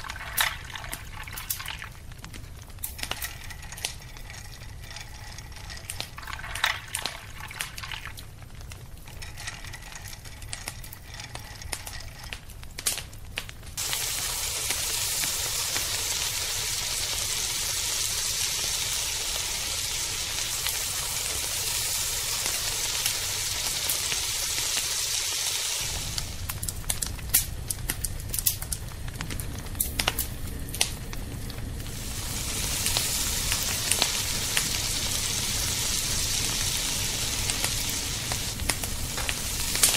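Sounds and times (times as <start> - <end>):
oil pouring into a wok: 0.0 - 2.0, 2.9 - 8.2, 13.8 - 26.5, 31.9 - 39.9
deep-frying sizzle: 0.0 - 39.9
oil crackling and popping: 0.0 - 39.9.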